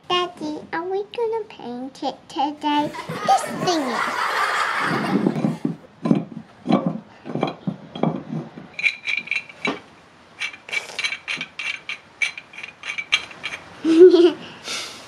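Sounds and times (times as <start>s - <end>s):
dull knocks: 4.8s - 8.7s
wrench metal clicks: 10.4s - 13.7s.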